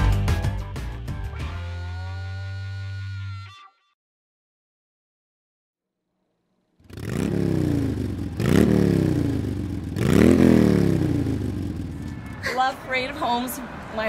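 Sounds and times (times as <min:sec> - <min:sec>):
pickup engine revving: 0:06.9 - 0:12.2.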